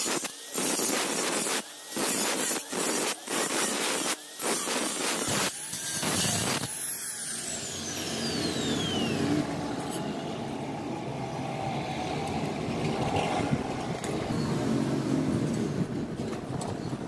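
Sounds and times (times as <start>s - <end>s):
angle grinder spinning down: 0.0s - 10.2s
engine rumble: 8.0s - 17.0s.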